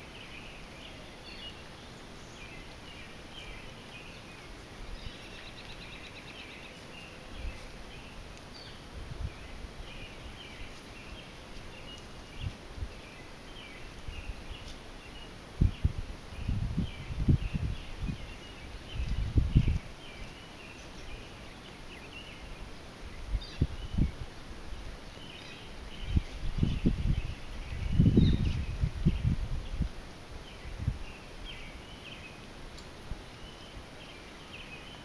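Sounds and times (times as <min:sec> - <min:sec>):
birds chirping and calling: 0:00.0 - 0:24.3, 0:25.0 - 0:35.0.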